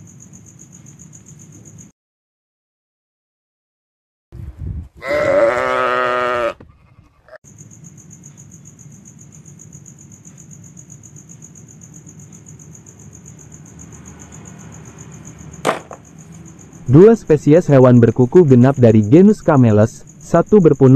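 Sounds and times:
sheep bleating: 5.0 - 7.4
pulsing insect chirring: 7.4 - 20.9.

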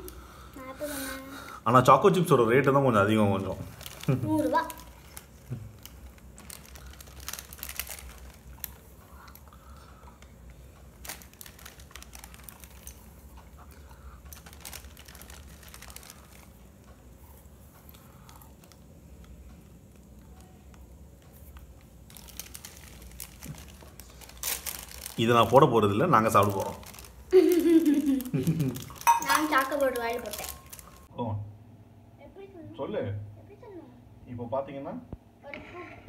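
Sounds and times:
rustling: 3.4 - 18.8, 19.6 - 31.1.

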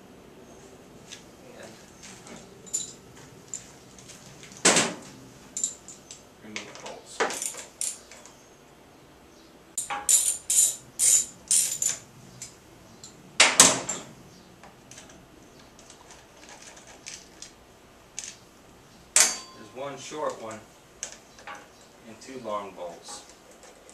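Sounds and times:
hand tools clicking on metal: 20.2 - 21.7.

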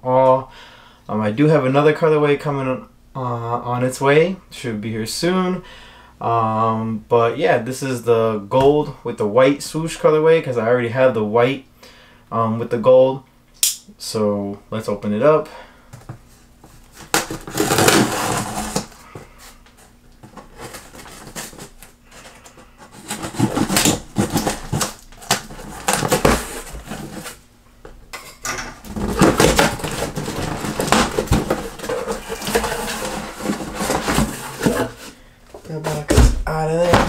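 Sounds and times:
shoe box rustling: 16.9 - 19.0, 19.8 - 27.4, 28.8 - 37.0
cardboard flaps pulled open: 17.0 - 18.9.

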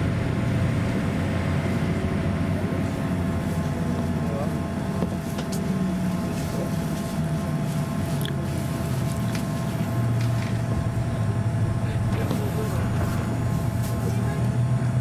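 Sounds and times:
airliner cabin drone: 0.0 - 15.0.

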